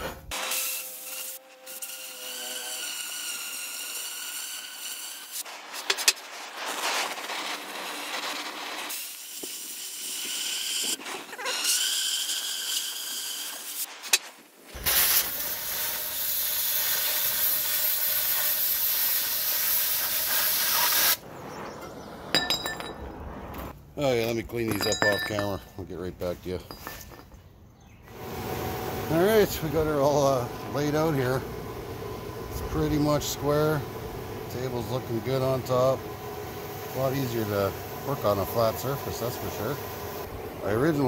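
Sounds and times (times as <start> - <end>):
cutting torch flame hissing: 3.8 - 21.6, 28.1 - 41.0
loud rushing hiss: 14.7 - 21.4.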